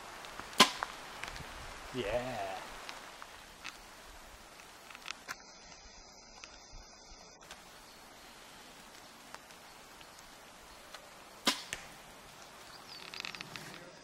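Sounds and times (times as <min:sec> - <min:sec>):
bow string crack: 0:00.2 - 0:01.4, 0:10.9 - 0:13.9
faint clicks: 0:08.8 - 0:10.3.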